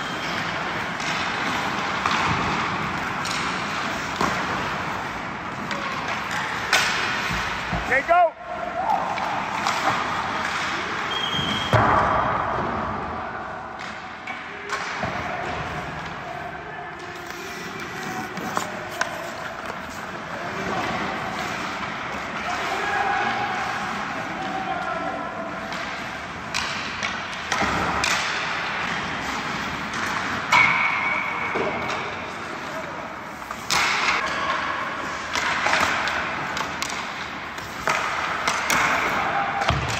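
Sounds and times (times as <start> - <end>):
puck struck with sharp crack: 0.2 - 8.2, 8.9 - 13.1, 25.6 - 32.4, 33.4 - 39.9.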